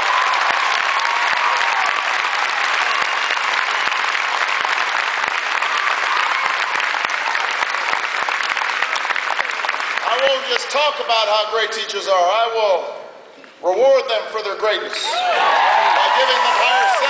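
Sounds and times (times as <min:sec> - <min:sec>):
voices cheering: 0:00.0 - 0:04.0, 0:05.5 - 0:07.5, 0:15.0 - 0:17.0
large crowd applauding: 0:00.0 - 0:11.1, 0:15.1 - 0:17.0.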